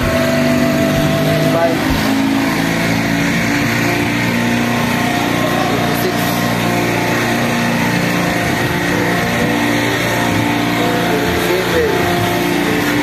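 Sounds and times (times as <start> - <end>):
machinery drone: 0.0 - 13.0.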